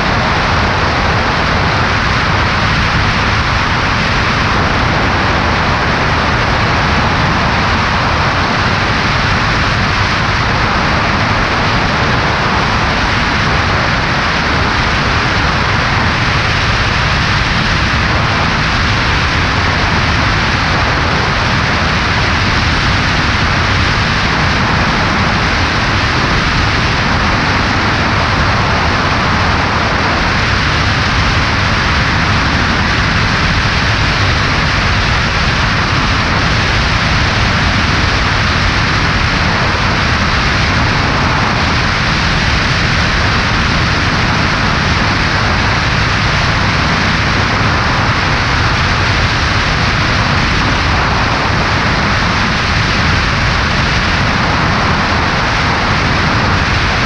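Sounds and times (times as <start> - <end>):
airplane engine and propeller drone: 0.0 - 57.0
rush of wind: 0.0 - 57.0.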